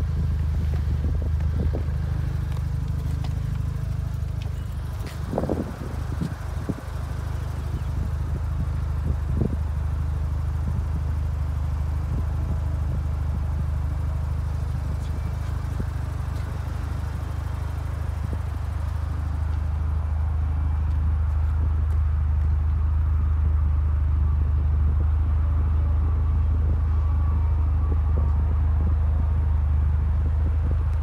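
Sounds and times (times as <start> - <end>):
rotary engine idling: 0.0 - 31.0.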